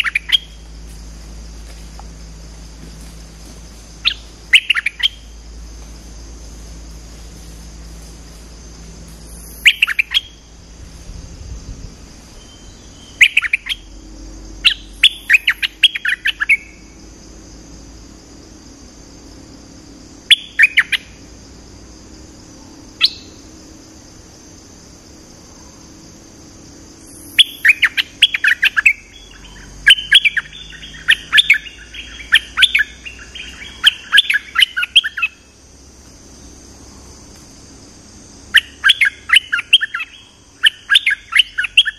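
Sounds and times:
bulbul chirping and chattering: 0.0s - 0.6s, 4.0s - 5.3s, 9.4s - 10.4s, 27.1s - 35.4s.

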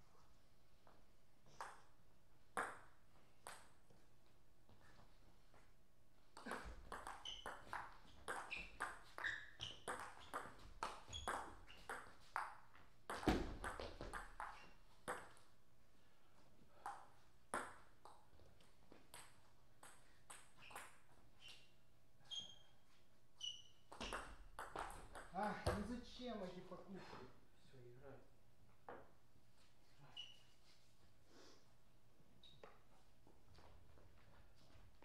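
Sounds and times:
ball bouncing: 2.6s - 3.7s, 6.4s - 15.4s, 16.9s - 18.2s, 23.9s - 26.0s.

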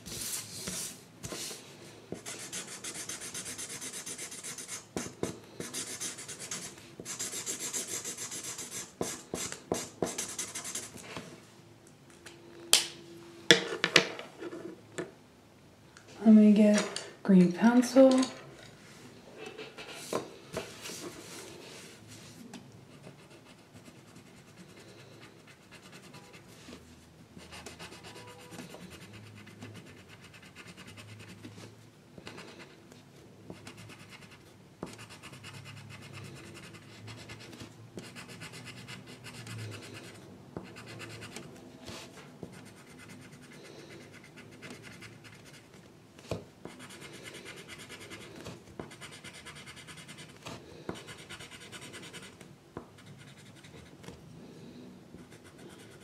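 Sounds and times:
pencil scratching on paper: 2.2s - 11.0s, 27.5s - 31.5s, 33.5s - 41.4s, 46.7s - 52.4s, 53.0s - 54.0s, 55.2s - 56.0s.

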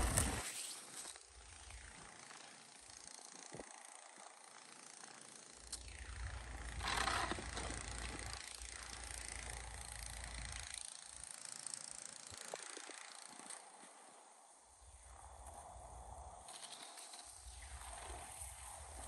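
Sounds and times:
snow shovel scraping snow: 0.0s - 1.2s
wind rumble on microphone: 14.8s - 16.6s, 17.4s - 19.0s.

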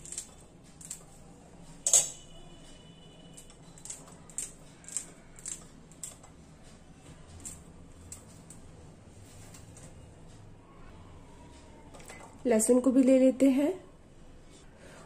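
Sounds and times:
scissors snipping: 3.4s - 6.3s.

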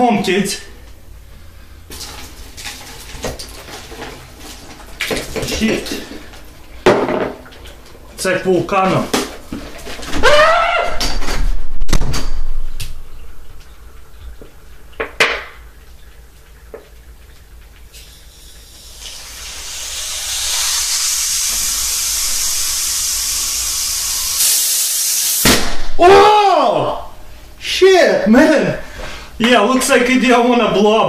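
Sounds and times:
gas hissing from bottle cap: 17.9s - 25.6s.

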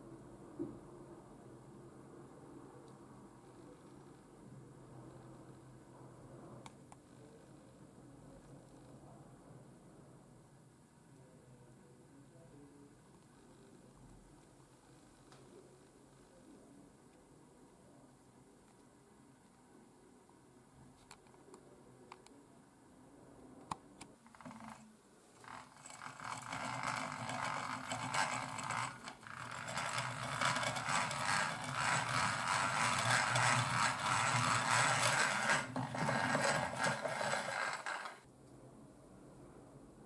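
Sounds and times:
hand drill gears whirring: 24.3s - 24.8s, 25.4s - 38.2s.

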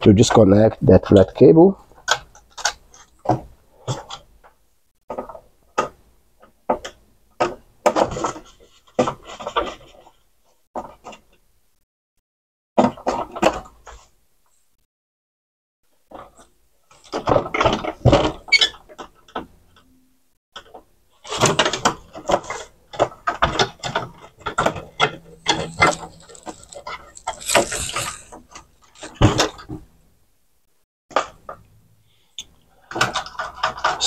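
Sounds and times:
clicks rattles and scraping of parts: 1.8s - 11.4s, 16.0s - 19.9s, 20.6s - 29.8s, 32.7s - 34.0s.

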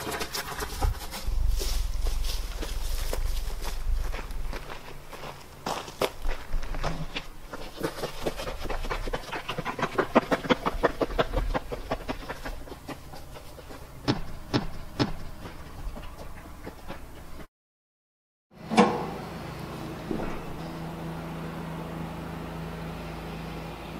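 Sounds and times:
footsteps on gravel: 0.0s - 17.5s.

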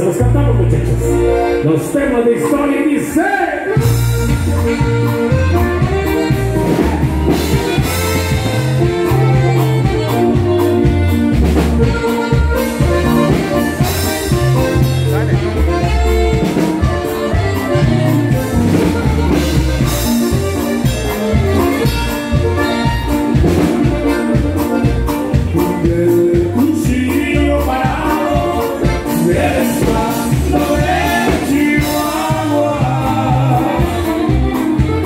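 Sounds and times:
bass: 0.0s - 35.0s
drums: 0.0s - 35.0s
saxophone melody: 0.8s - 2.7s, 3.5s - 35.0s
person singing: 25.3s - 34.8s.

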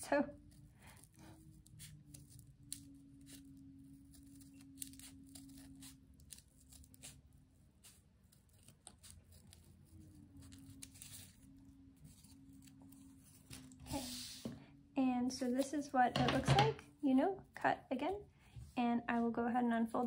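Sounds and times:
scissors snipping paper: 0.4s - 13.8s.

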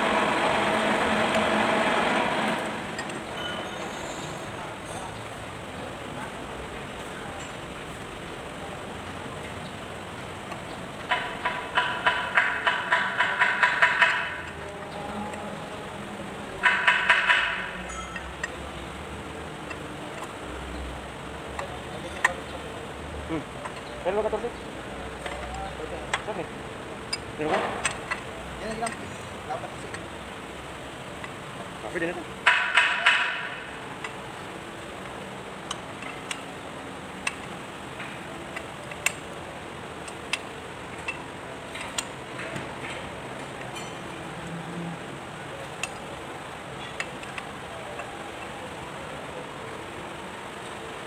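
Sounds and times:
metal clicks and taps: 16.6s - 18.6s, 19.6s - 20.4s, 21.5s - 22.5s, 23.6s - 24.0s, 25.2s - 26.4s, 27.1s - 29.1s, 29.8s - 30.1s, 35.0s - 36.6s, 37.2s - 39.4s, 40.0s - 44.5s, 45.6s - 46.1s, 46.8s - 48.6s
socket wrench metallic clinks: 17.8s - 18.5s.

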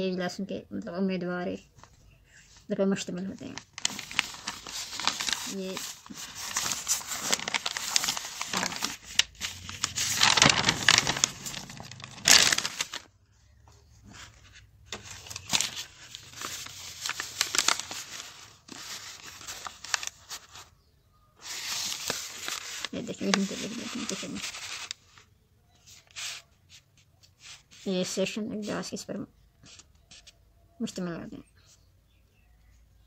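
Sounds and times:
paper rustling and crinkling: 1.8s - 20.7s, 21.4s - 28.4s.

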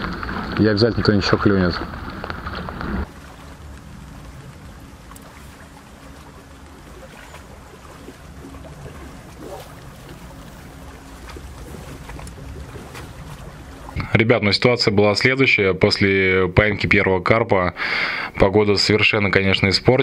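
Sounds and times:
wind rumbling on microphone: 0.0s - 15.4s
faint steady hum: 0.0s - 20.0s
water lapping at bank: 0.0s - 20.0s.

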